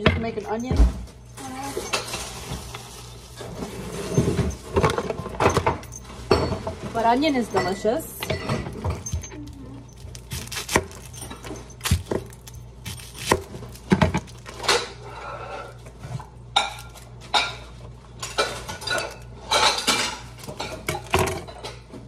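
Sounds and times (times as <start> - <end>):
onion skin rustling: 8.8 - 17.2.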